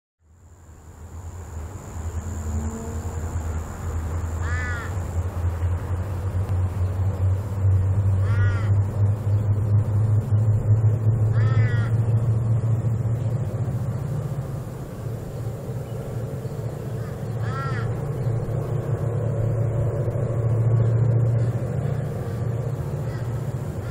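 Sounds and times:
diesel locomotive engine rumble: 0:00.2 - 0:23.9
crow cawing: 0:04.4 - 0:05.0, 0:08.2 - 0:08.8, 0:11.3 - 0:12.0, 0:17.0 - 0:18.0, 0:23.0 - 0:23.9.

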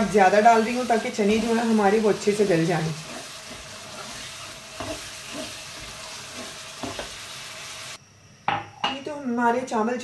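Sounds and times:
chickpeas sizzling in oil: 0:00.0 - 0:08.0.

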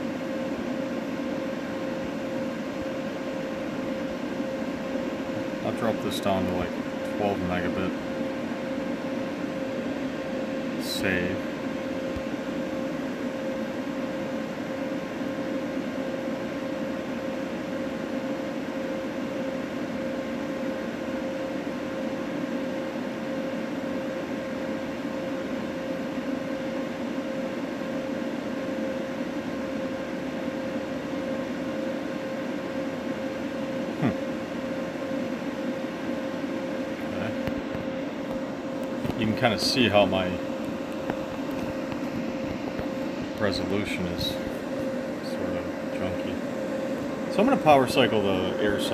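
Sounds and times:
machine hum: 0:00.0 - 0:48.9
constant mid-pitched tone: 0:36.4 - 0:48.9.

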